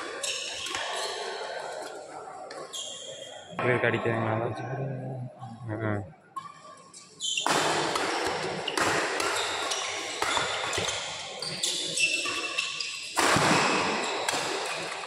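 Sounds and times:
rackets hitting shuttlecock: 7.4s - 12.5s, 13.1s - 15.0s.

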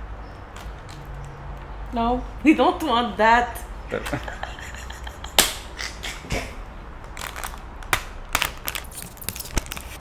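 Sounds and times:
plastic film peeling crackle: 7.1s - 10.0s.

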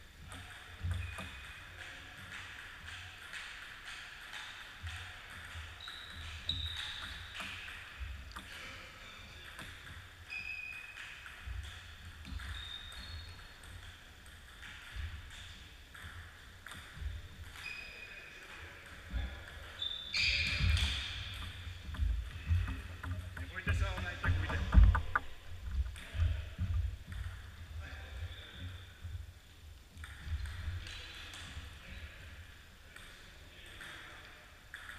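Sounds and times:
shoe squeaks: 5.8s - 7.7s, 10.3s - 11.1s, 12.4s - 13.6s, 17.6s - 18.3s, 19.7s - 21.8s, 22.4s - 25.8s
footsteps thumping on wooden floor: 21.9s - 26.0s.

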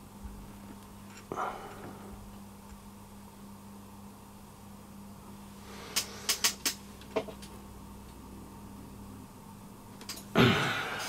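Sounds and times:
low electrical hum: 0.0s - 11.0s
small tools clicking and tapping: 6.0s - 7.5s.

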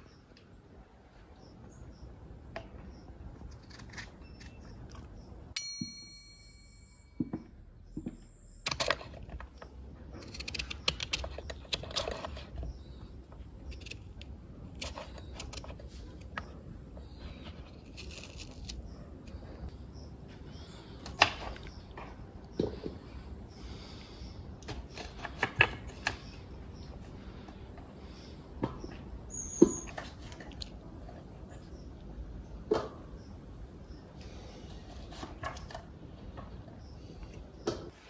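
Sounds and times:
bright metallic ding: 5.6s - 7.4s.

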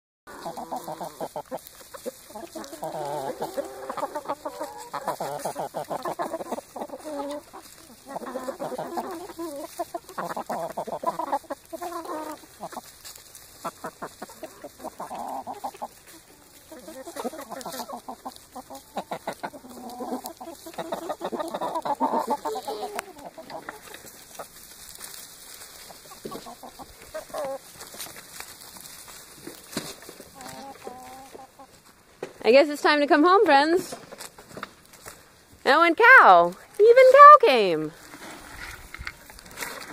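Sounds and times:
chickens clucking: 0.3s - 39.9s.

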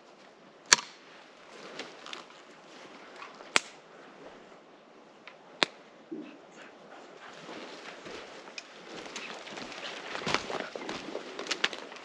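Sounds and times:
rustling in undergrowth: 1.0s - 4.6s, 6.6s - 12.0s
dry twigs snapping: 8.5s - 12.0s.

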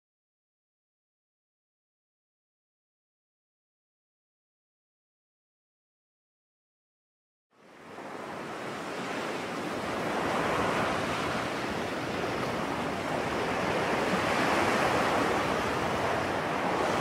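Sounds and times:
ocean waves washing in: 7.6s - 17.0s.

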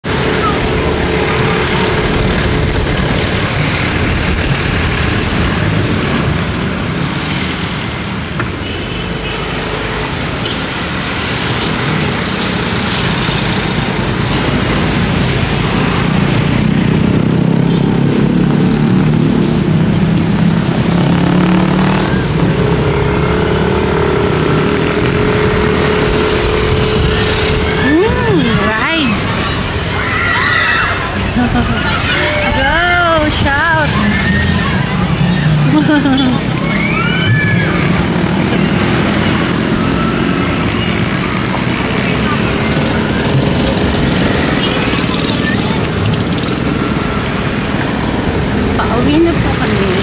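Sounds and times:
road and wind noise: 0.0s - 50.0s
vehicle engine running: 18.2s - 29.9s
low engine drone: 19.5s - 29.9s.

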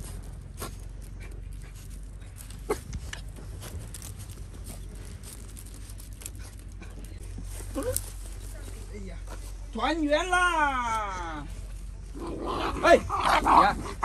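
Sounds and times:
puppies panting and whimpering: 0.0s - 8.5s
scuffles: 0.0s - 10.2s.

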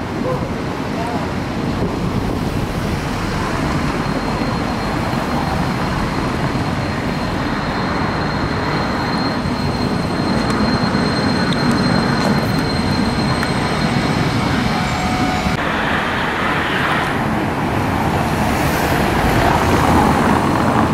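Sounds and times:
tram wheels rumbling on rails: 0.0s - 20.9s
thin high whine: 3.0s - 17.4s.

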